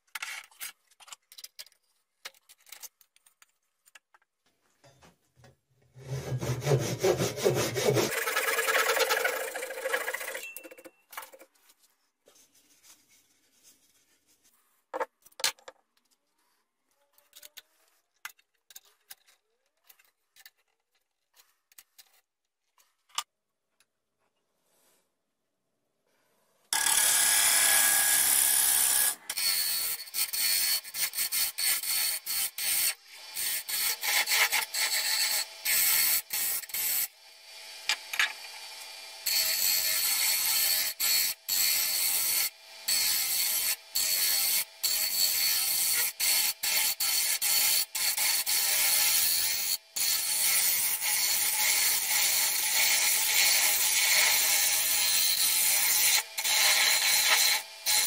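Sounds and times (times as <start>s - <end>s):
lathe tool scraping wood: 6.0s - 10.4s, 50.0s - 58.0s.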